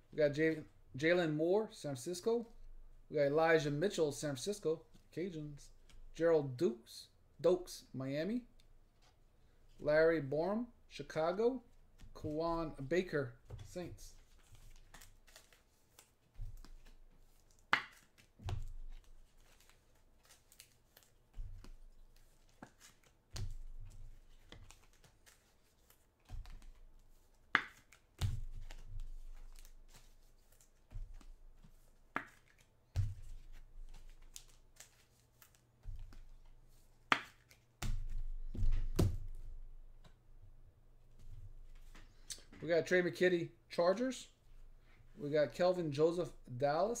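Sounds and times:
cards and packaging handled on table: 11.7 - 40.2, 41.1 - 42.6.

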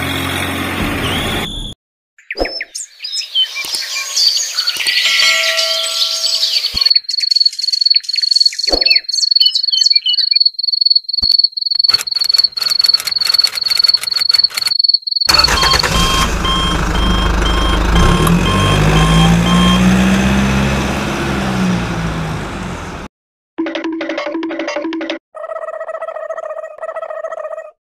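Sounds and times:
cricket chirping: 6.8 - 15.8
mechanical running noise: 11.9 - 14.7.

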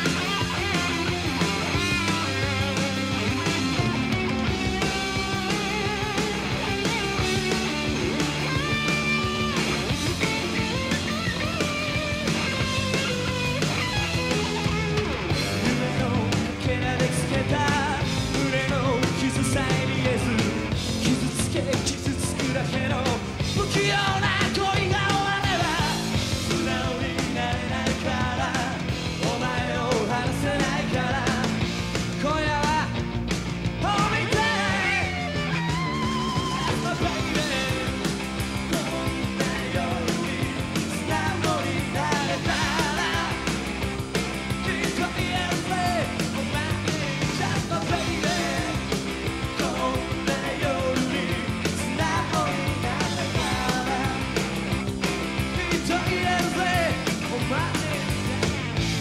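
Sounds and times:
drums steady beat: 0.0 - 59.0
live rock band playing: 0.0 - 59.0
man singing lead: 15.3 - 33.1, 33.8 - 54.6, 55.4 - 58.4.

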